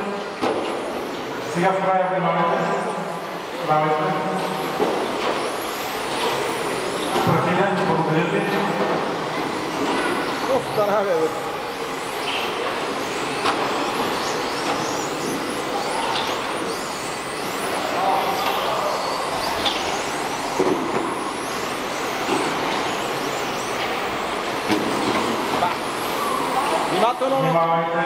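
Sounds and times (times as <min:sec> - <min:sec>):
toy race car motors whining: 0:09.4 - 0:24.6.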